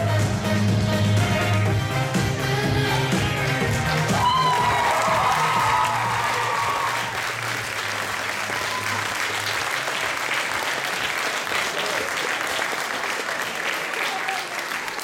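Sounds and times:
audience applauding: 0:03.7 - 0:15.0.

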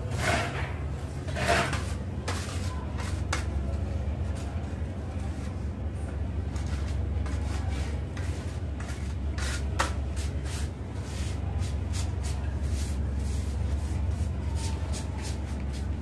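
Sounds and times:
steady low hum: 0:00.0 - 0:16.0
trowel scraping floor tiles: 0:00.1 - 0:03.5.

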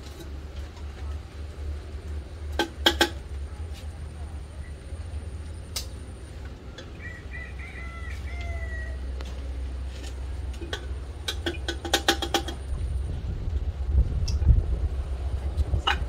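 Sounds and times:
rooster crowing: 0:06.8 - 0:09.4.

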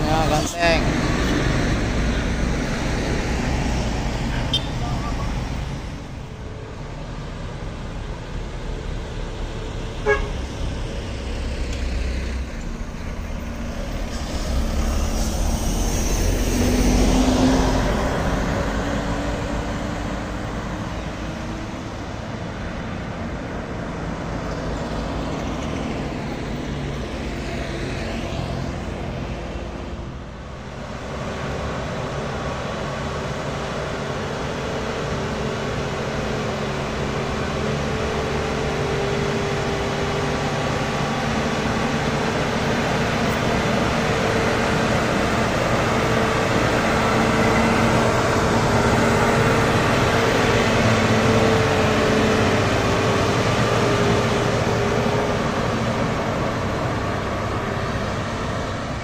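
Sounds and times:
diesel engines passing: 0:00.0 - 0:59.0
truck diesel engine pulling: 0:00.0 - 0:59.0
horn toot: 0:10.0 - 0:10.4.

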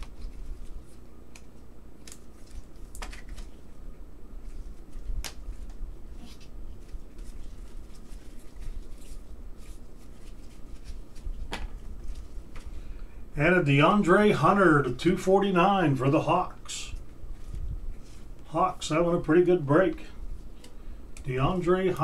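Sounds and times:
cards rustling and clicking: 0:00.0 - 0:03.8, 0:04.4 - 0:12.8
low steady hum: 0:00.0 - 0:22.0.

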